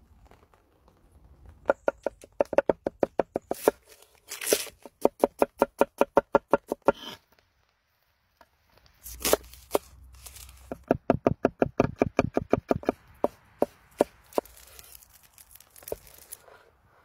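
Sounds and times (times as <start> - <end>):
cleaver chopping on wooden board: 1.7 - 3.8, 4.4 - 7.1, 10.6 - 14.6.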